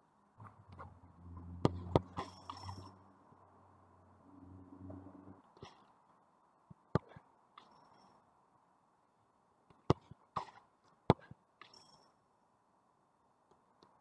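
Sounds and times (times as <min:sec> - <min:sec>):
ball kicks thudding: 0:09.8 - 0:11.4.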